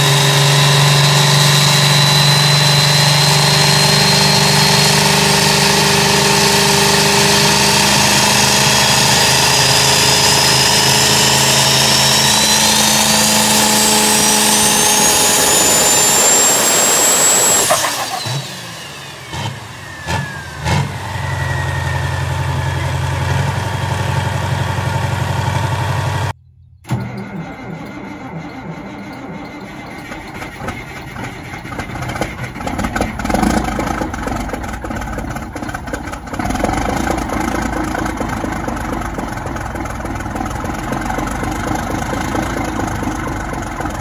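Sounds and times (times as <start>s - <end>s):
diesel engine whining: 0.0s - 44.0s
diesel engine idling: 17.9s - 44.0s.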